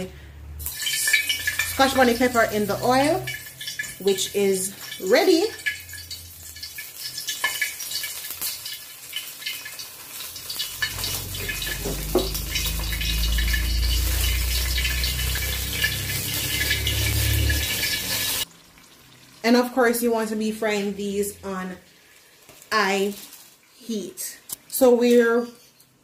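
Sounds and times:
oil sizzling and crackling: 0:00.0 - 0:26.0
low rumble: 0:10.8 - 0:18.4.

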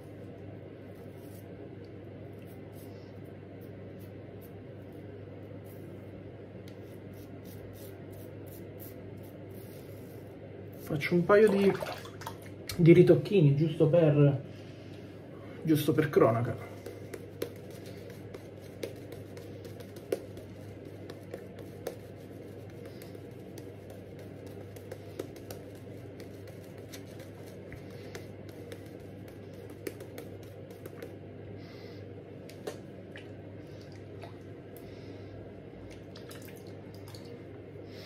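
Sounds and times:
steady low hum: 0:00.0 - 0:38.0
shaving brush squishing lather: 0:06.8 - 0:10.1, 0:16.2 - 0:31.2.

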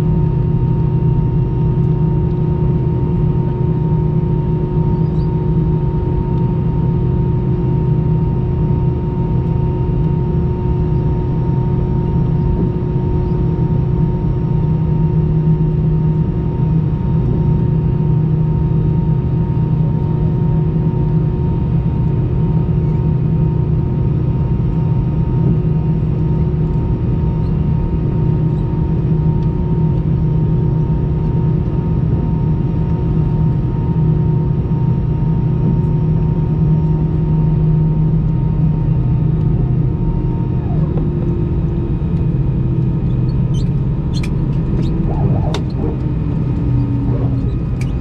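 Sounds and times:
airplane cabin engine hum: 0:00.0 - 0:48.0
engines winding down: 0:44.6 - 0:48.0.

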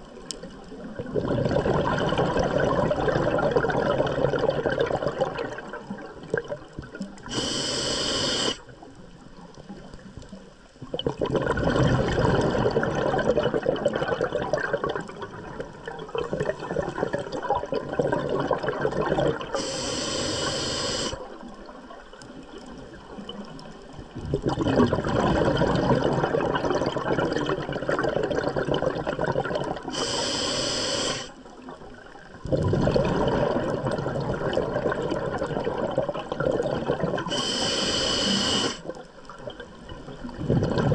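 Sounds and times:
exhaled bubbles underwater: 0:00.0 - 0:40.9
regulator inhale hiss: 0:07.2 - 0:08.7, 0:19.5 - 0:21.3, 0:29.9 - 0:31.4, 0:37.2 - 0:39.0.

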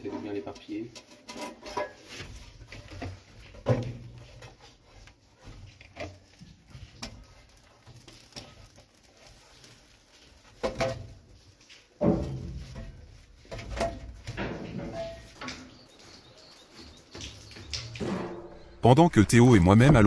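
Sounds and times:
iron rod knocking and scraping: 0:12.0 - 0:15.7, 0:17.9 - 0:18.8.

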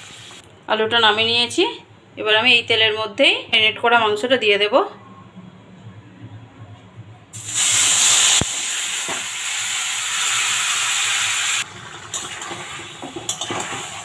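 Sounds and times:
chicken sizzling in hot oil: 0:00.0 - 0:00.4, 0:07.4 - 0:14.0.

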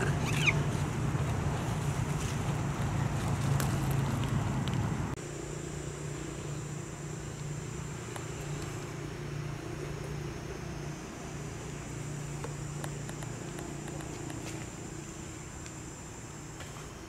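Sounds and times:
low motor hum: 0:00.0 - 0:17.0
faint high whine: 0:05.2 - 0:17.0.

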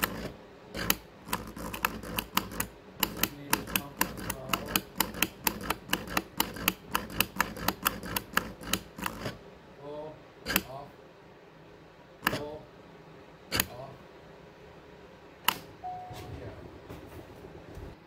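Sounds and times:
faint whine: 0:08.5 - 0:18.0.

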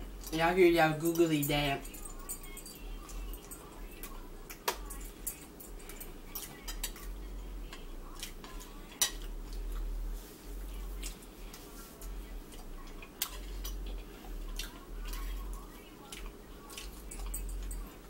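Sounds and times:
forks clinking on ceramic plates: 0:16.7 - 0:18.0.

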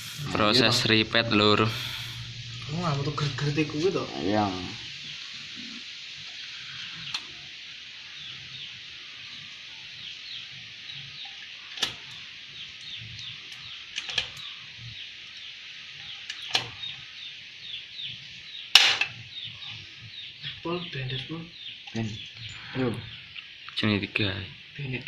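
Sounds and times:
steady high chirping: 0:00.0 - 0:25.0.

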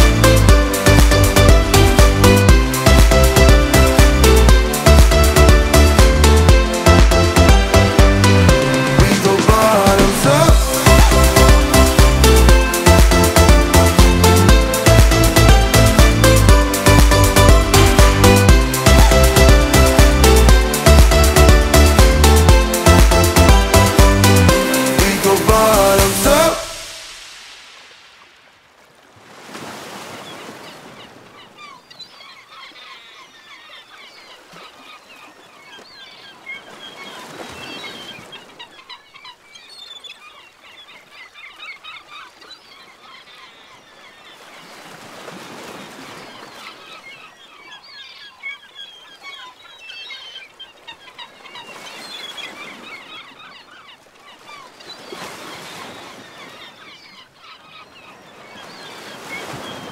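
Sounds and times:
surf washing on a beach: 0:06.2 - 0:31.7, 0:44.4 - 0:47.8
flock of birds calling: 0:46.0 - 0:59.9.

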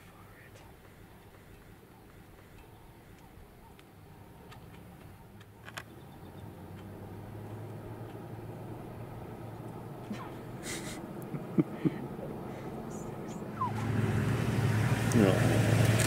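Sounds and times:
vehicle engine idling: 0:00.0 - 0:16.0
faint clicks: 0:00.5 - 0:05.9, 0:06.7 - 0:07.0.

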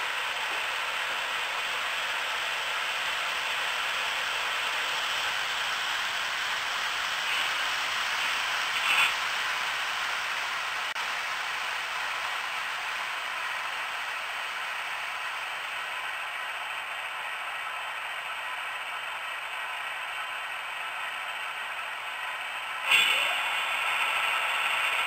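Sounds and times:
model train clatter: 0:00.0 - 0:10.9, 0:22.8 - 0:25.0
model train whirring hiss: 0:00.0 - 0:25.0.

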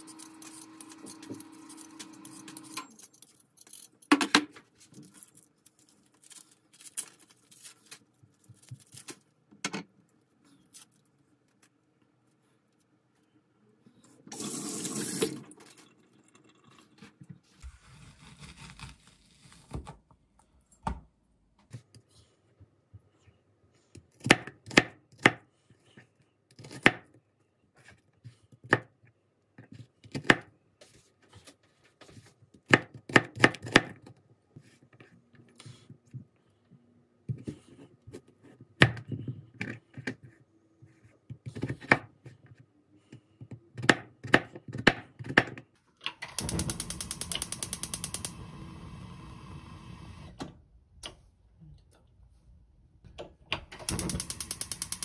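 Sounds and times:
gas stove igniter clicking: 0:46.3 - 0:48.4, 0:53.8 - 0:55.0.

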